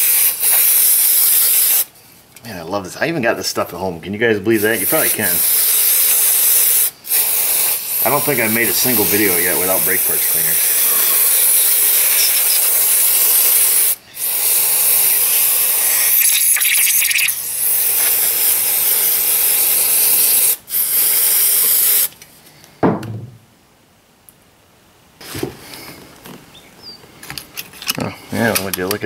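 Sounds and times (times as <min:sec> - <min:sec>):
aerosol can spraying: 0:00.0 - 0:01.9, 0:04.6 - 0:22.1
thump: 0:22.8 - 0:23.4.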